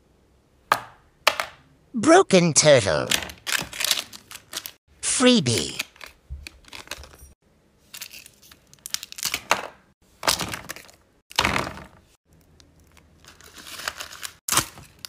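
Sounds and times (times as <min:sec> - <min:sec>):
plastic packaging crinkling: 0:03.4 - 0:04.8.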